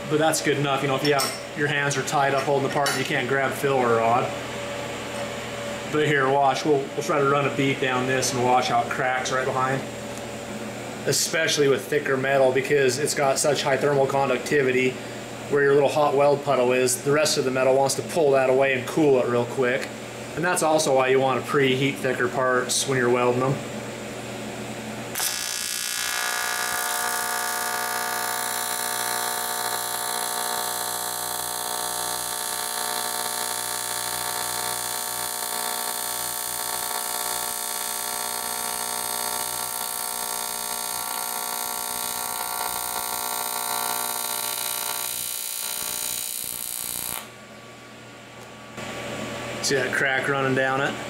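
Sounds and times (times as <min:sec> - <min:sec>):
welding arc buzzing and hissing: 0:25.1 - 0:47.3.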